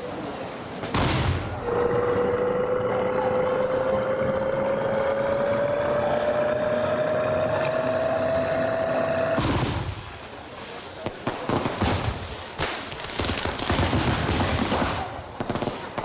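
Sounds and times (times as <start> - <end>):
fireworks crackling and popping: 0.6 - 1.9, 9.3 - 16.0
fireworks bangs: 0.7 - 2.6, 9.3 - 16.0
steady rising whine: 1.5 - 9.4.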